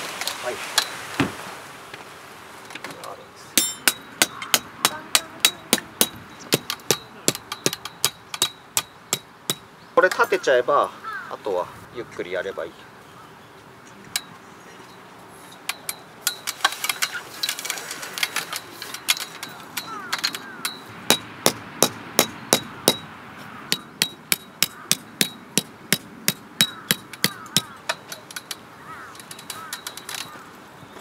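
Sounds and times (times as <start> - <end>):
hammer striking metal stakes: 3.6 - 10.4, 15.5 - 17.6, 18.2 - 23.1, 23.7 - 28.6.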